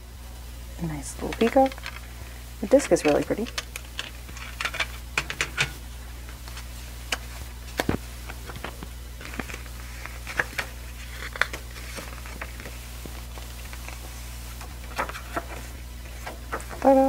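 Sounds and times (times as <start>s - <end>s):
paper rustling: 6.3s - 17.0s.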